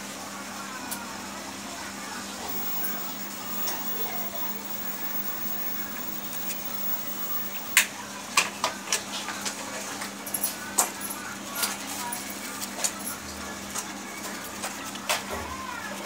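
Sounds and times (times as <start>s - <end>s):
steady low hum: 2.5s - 7.8s.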